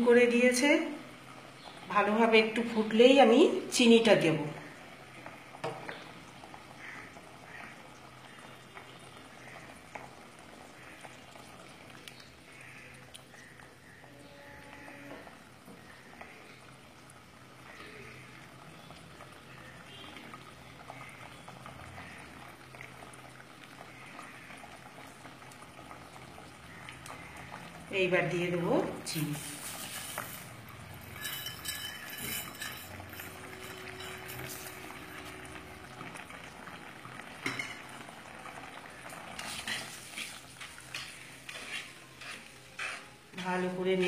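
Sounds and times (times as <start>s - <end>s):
chutney bubbling in a pot: 0.0s - 44.0s
spatula scraping and stirring: 29.4s - 35.5s, 39.3s - 44.0s.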